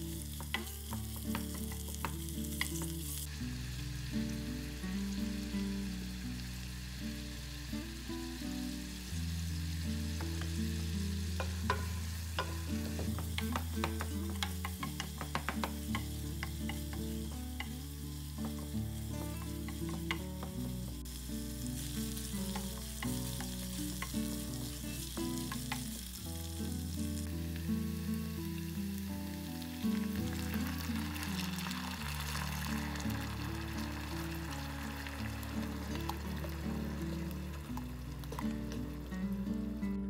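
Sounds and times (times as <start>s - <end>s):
meat and onion sizzling in oil: 0.0s - 40.0s.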